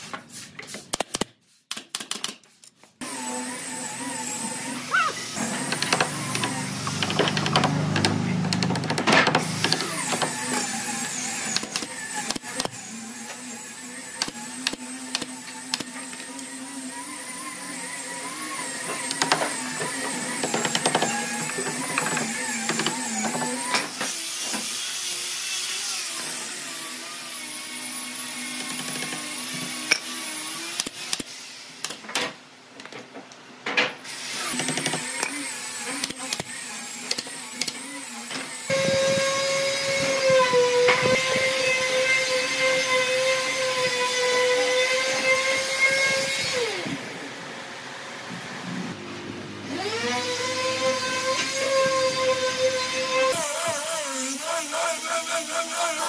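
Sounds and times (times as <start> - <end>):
knocks and clicks: 5.7 - 10.3
power tool motor whining: 34.2 - 47.1, 49.6 - 56.0.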